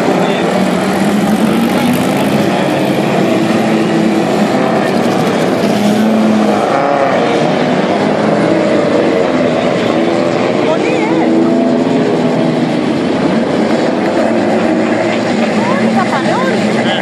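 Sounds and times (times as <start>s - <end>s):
engine revving: 0.0s - 17.0s
race car engines rumbling: 0.0s - 17.0s.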